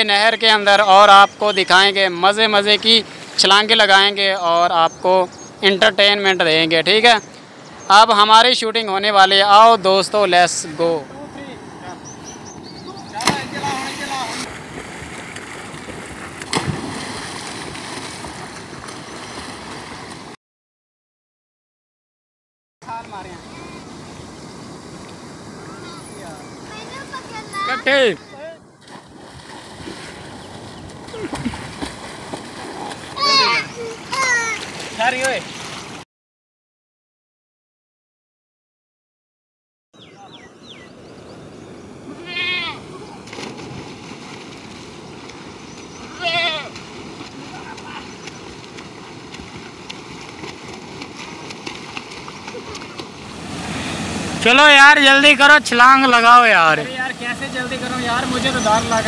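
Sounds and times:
water churning and sloshing: 12.6s - 20.4s, 28.8s - 36.0s, 42.9s - 54.8s
person splashing into water: 13.2s - 20.4s, 28.8s - 33.3s, 43.2s - 45.6s, 46.7s - 54.4s
goat bleating: 42.2s - 42.8s, 46.1s - 46.8s.

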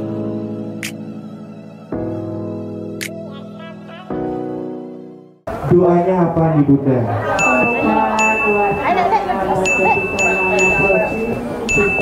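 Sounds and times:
murmur of voices: 5.5s - 12.0s
high bell-like chime: 7.4s - 12.0s.

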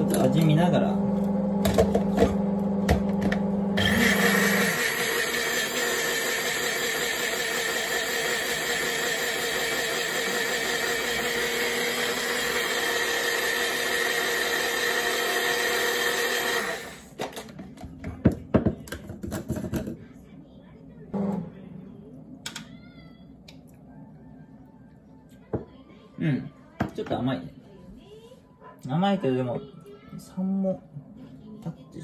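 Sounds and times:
blender motor running: 1.2s - 17.2s.

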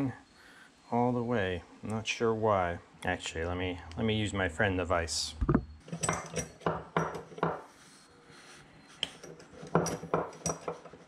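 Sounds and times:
metal vise clinks and knocks: 5.4s - 7.6s, 9.2s - 11.0s.

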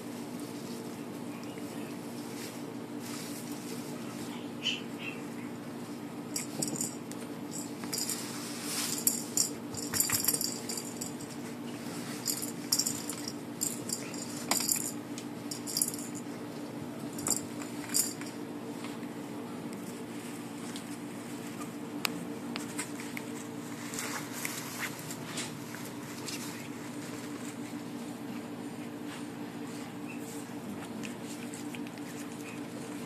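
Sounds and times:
puppies scuffling on cloth: 0.0s - 4.5s, 5.8s - 13.3s, 18.7s - 33.0s
steady low hum: 0.0s - 33.0s.

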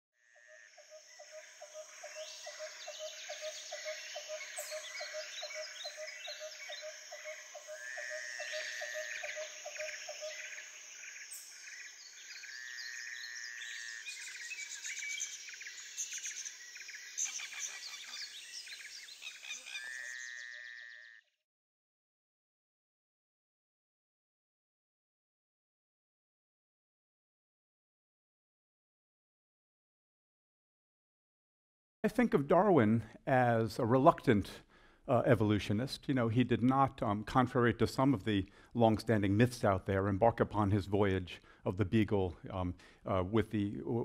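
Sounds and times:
birds chirping and whistling: 1.2s - 7.8s, 8.5s - 20.5s.

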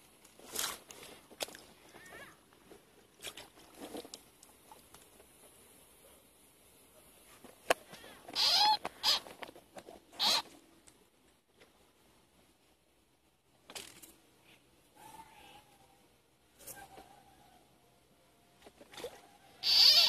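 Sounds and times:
frog crying: 8.3s - 9.2s, 10.2s - 10.4s, 19.6s - 20.0s.

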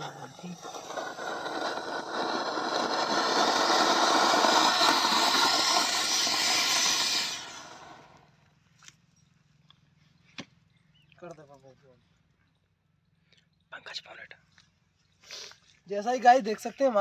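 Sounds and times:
firework fountain hissing: 0.0s - 8.2s.

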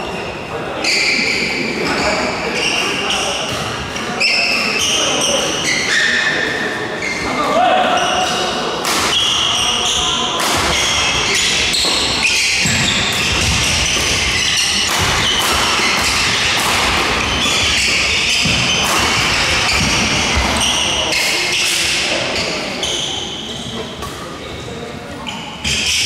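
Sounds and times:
shoes squeaking on wooden court: 0.8s - 26.0s
rackets striking shuttlecock: 8.8s - 22.1s.

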